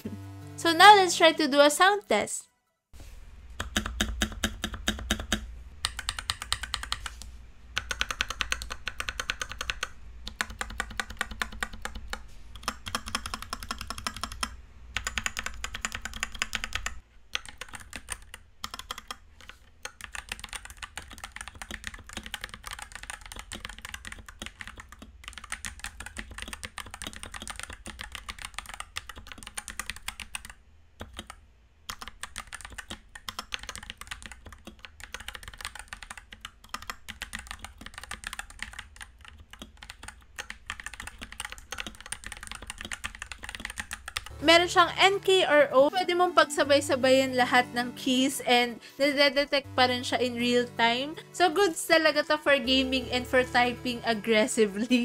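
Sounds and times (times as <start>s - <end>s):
mechanical keyboard typing: 3.6s - 7.2s, 7.8s - 44.3s.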